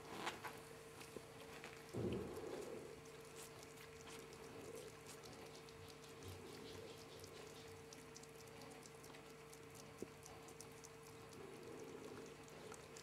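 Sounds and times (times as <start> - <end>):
faint steady hum: 0.0 - 13.0
ferret licking wet clicks: 1.0 - 13.0.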